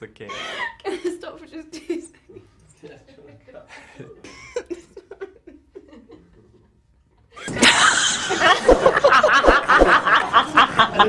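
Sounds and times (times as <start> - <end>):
women laughing: 4.2 - 6.5, 7.4 - 11.0.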